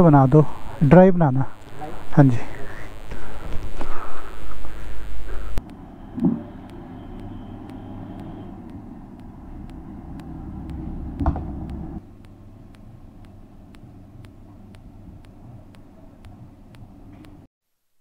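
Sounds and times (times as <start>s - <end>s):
quiet hum: 0.0s - 17.5s
vehicle engine rumbling: 5.3s - 17.1s
sharp knock: 10.7s - 11.8s.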